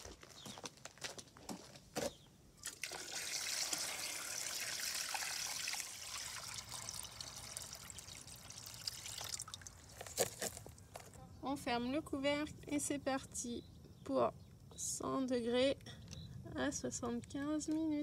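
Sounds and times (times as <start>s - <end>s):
water pouring from a jug: 2.6s - 10.2s.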